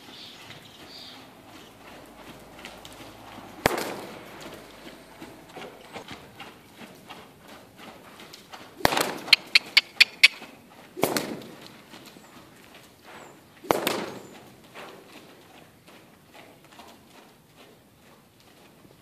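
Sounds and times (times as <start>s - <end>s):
hoofbeats on sand: 0.0s - 19.0s
loud sudden bangs: 3.6s - 4.5s
sharp clicks: 8.8s - 10.5s.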